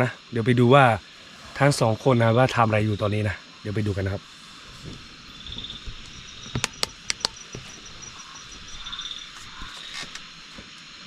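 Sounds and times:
high ticking insect call: 0.0 - 11.0
night insects chirring: 0.0 - 11.0
sharp clicks: 6.5 - 7.7.

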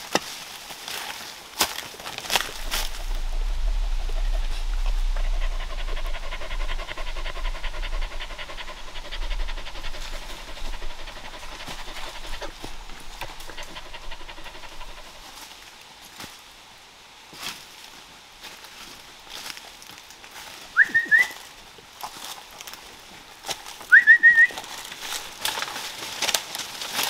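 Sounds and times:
dog panting: 2.4 - 15.4.

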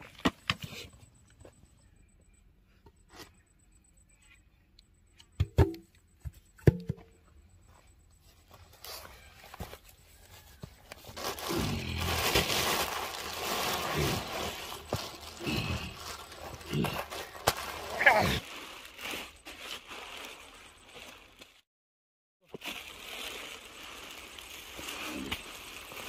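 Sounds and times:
plastic sheeting crinkling: 10.9 - 21.7, 22.4 - 26.0.

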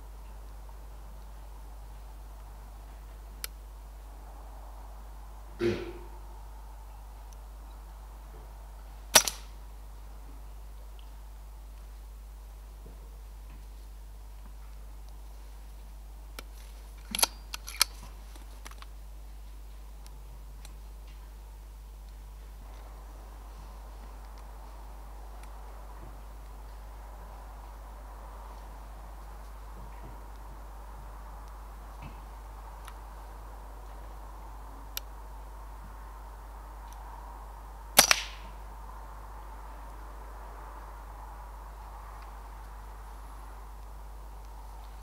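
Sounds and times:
air rifle shot crack: 5.6 - 6.2, 9.1 - 9.5, 38.0 - 38.6
sharp smack of pellet impact: 5.6 - 6.2, 9.2 - 9.4, 38.0 - 38.5.

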